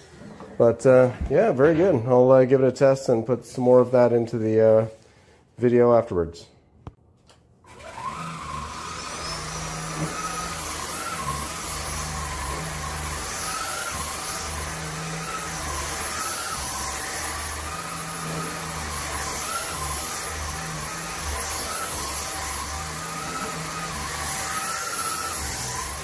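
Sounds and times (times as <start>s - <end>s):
stick vacuum running: 7.7s - 26.0s.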